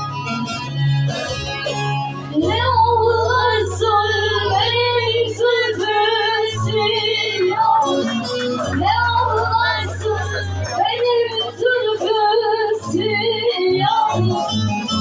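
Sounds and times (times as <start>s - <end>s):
instrumental accompaniment: 0.0s - 15.0s
woman singing: 2.4s - 14.7s.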